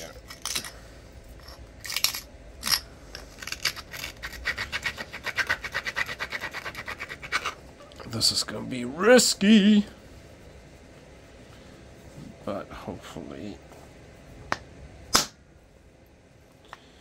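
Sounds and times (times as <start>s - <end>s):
scratching of flint edge: 3.2s - 7.6s.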